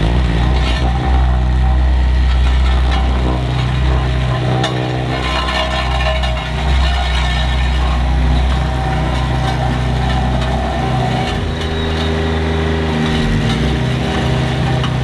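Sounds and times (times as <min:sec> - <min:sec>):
diesel engine running at low revs: 0:00.0 - 0:15.0.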